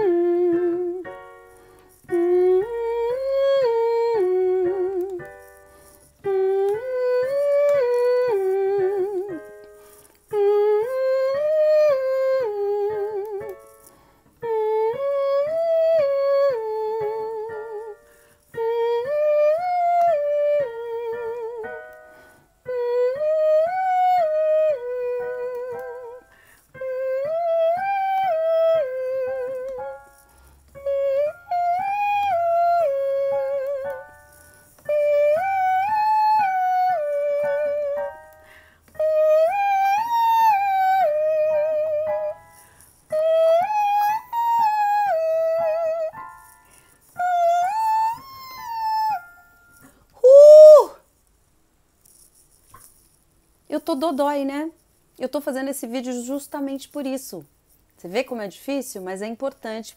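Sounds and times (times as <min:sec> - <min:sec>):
woman singing vocal warm-up: 0:02.1 - 0:05.3, 0:06.2 - 0:09.5, 0:10.3 - 0:13.6, 0:14.4 - 0:18.0.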